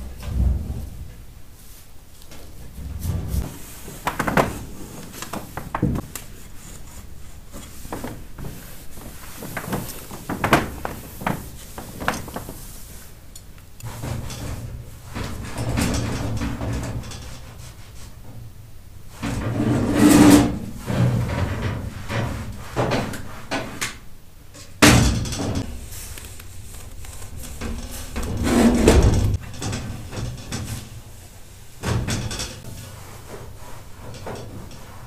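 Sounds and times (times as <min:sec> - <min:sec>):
scrape and clatter: 0:19.2 - 0:23.8, 0:25.4 - 0:31.0
cloth rubbing on stove: 0:32.7 - 0:35.0.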